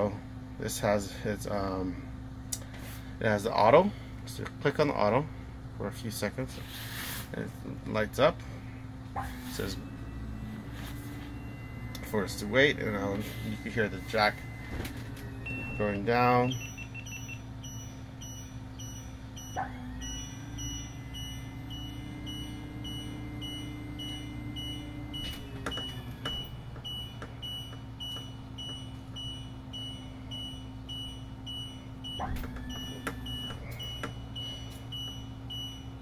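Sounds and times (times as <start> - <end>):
hydraulic pump hum: 6.5 - 36.0
engine idling: 7.4 - 36.0
high-pitched whine: 9.2 - 26.5
short warning beeps: 9.3 - 36.0.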